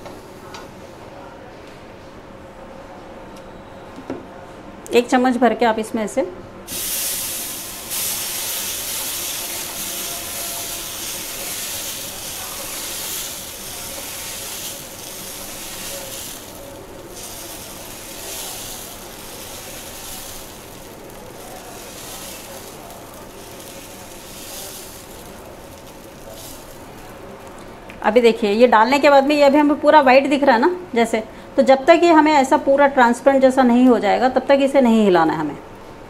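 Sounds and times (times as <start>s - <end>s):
batter sizzling on hot griddle: 6.7s - 27.6s.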